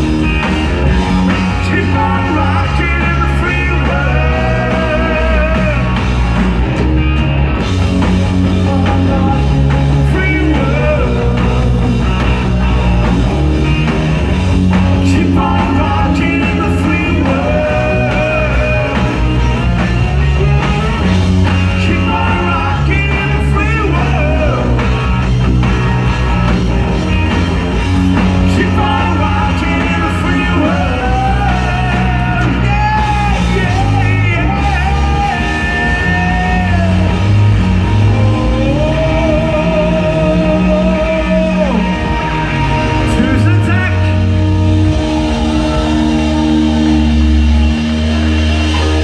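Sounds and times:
live rock band: 0:00.0 - 0:49.0
man singing: 0:01.4 - 0:06.0, 0:08.4 - 0:12.3, 0:15.0 - 0:19.3, 0:21.7 - 0:25.0, 0:28.4 - 0:37.4, 0:38.0 - 0:44.3.

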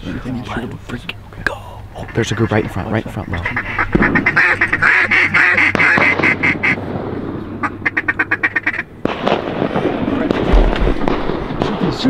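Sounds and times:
duck quacking: 0:02.0 - 0:06.8, 0:07.6 - 0:08.9.

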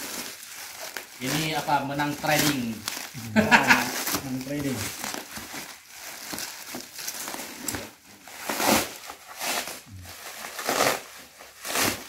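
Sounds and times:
bubble wrap and plastic mailer rustling: 0:00.0 - 0:12.0.

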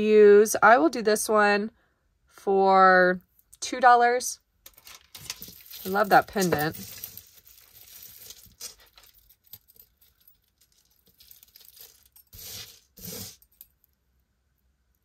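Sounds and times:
metal jewelry pieces clinking: 0:04.6 - 0:13.9
rustles: 0:04.8 - 0:13.5.

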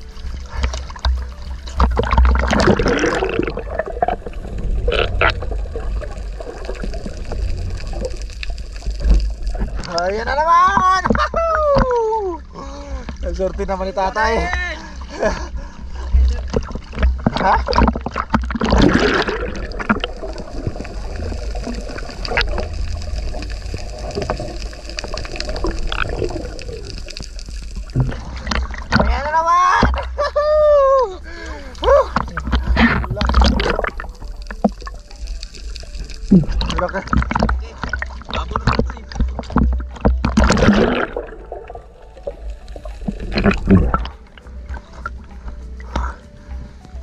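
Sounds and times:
bubbly bursts: 0:00.0 - 0:10.1, 0:16.6 - 0:29.2, 0:31.2 - 0:45.1
underwater gurgling and bubbling: 0:00.0 - 0:30.3, 0:31.1 - 0:47.0
low rumble: 0:00.0 - 0:47.0.

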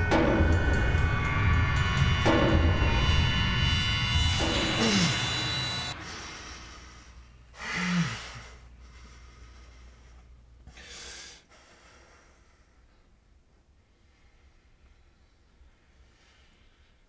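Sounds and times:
music: 0:00.0 - 0:06.0
person gasping: 0:06.0 - 0:12.1
person breathing: 0:06.0 - 0:13.2, 0:13.8 - 0:17.0.

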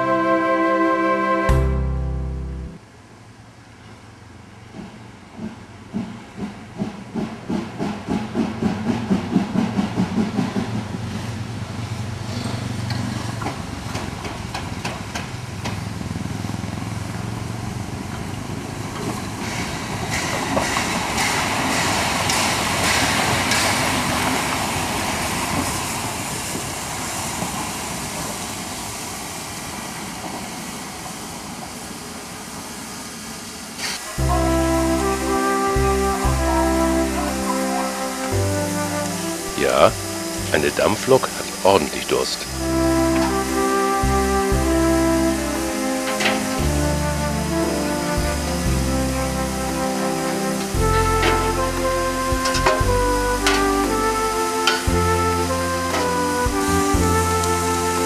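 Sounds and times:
wheels clicking over rail joints: 0:04.5 - 0:28.7, 0:45.8 - 0:46.6, 0:52.4 - 0:55.1
steam locomotive exhaust beats: 0:04.5 - 0:58.0
steam hissing: 0:04.8 - 0:58.0.

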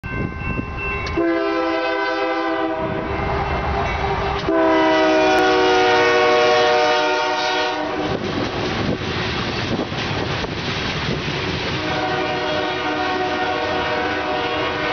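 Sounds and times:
train cars rumbling by: 0:00.0 - 0:14.9
locomotive air horn blasts: 0:01.1 - 0:03.2, 0:04.4 - 0:08.2, 0:11.7 - 0:14.9.

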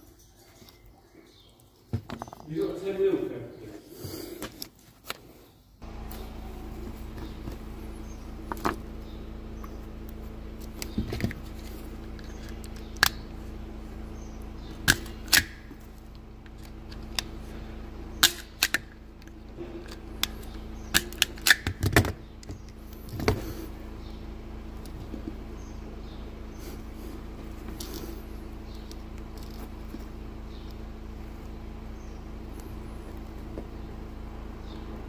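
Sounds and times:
steady low hum: 0:05.3 - 0:35.0
wire handling clicks and snaps: 0:10.6 - 0:13.2, 0:14.7 - 0:17.3, 0:18.2 - 0:23.4.

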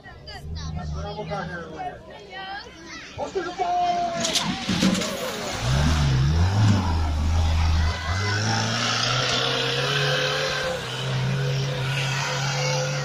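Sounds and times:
tractor engine revving: 0:04.2 - 0:13.0.

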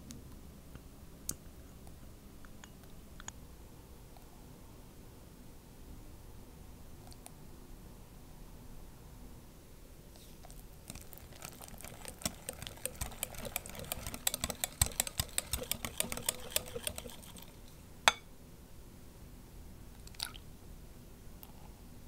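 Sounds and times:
wire whisk clicking against glass bowl: 0:12.2 - 0:17.5.

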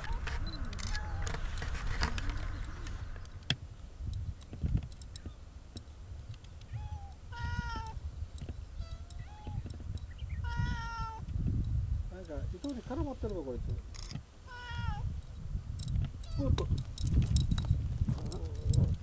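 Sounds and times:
cats meowing: 0:00.0 - 0:01.5, 0:06.6 - 0:08.0, 0:08.7 - 0:09.7, 0:10.3 - 0:11.3, 0:14.4 - 0:15.1, 0:16.2 - 0:16.6
sharp clicks: 0:00.0 - 0:06.8.

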